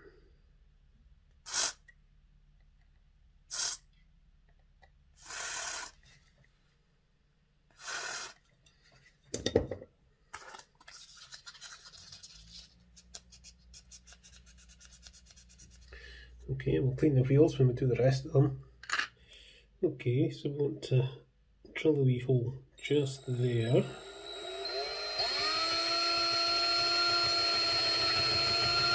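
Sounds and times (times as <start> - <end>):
aerosol spray hissing: 1.5 - 1.8, 3.5 - 3.8.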